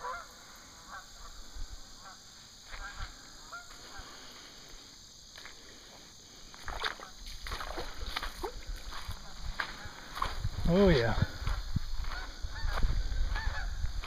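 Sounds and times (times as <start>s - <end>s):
geese honking: 0.0s - 4.2s, 12.1s - 13.9s
footsteps on gravel: 6.5s - 14.0s.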